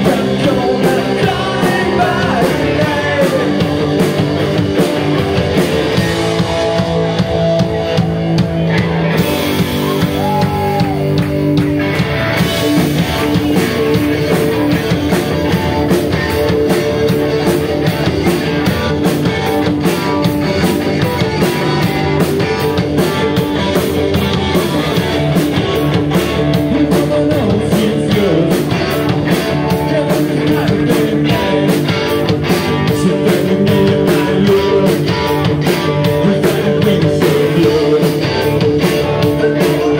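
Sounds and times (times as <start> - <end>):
rock band playing live: 0.0 - 39.9.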